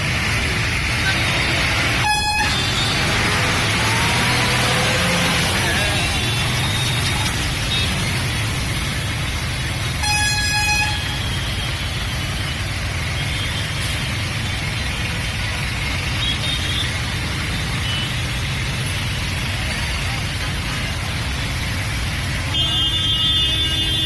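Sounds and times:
road traffic: 0.0s - 24.0s
vehicle horn honking: 2.0s - 3.0s, 10.0s - 11.4s, 22.5s - 24.0s.

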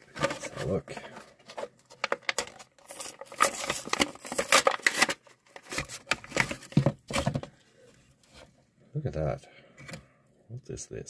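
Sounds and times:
package tearing and crinkling: 1.6s - 7.3s.

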